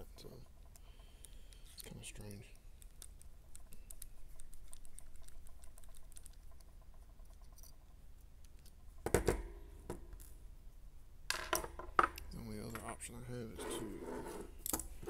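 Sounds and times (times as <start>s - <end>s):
small parts clicking and ticking: 0.1s - 8.8s.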